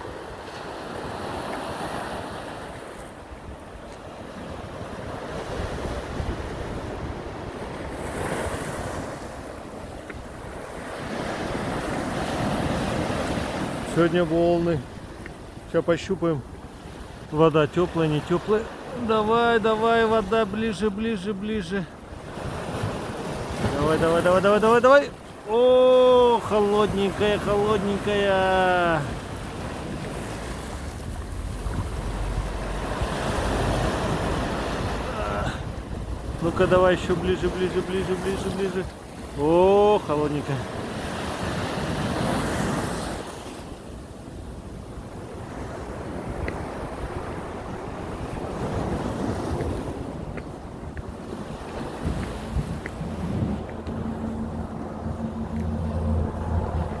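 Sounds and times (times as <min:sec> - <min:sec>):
sea waves breaking: 0:00.0 - 0:57.0
waves washing up gravel beach: 0:16.0 - 0:43.5
wind buffeting microphone: 0:28.5 - 0:37.2, 0:44.4 - 0:57.0.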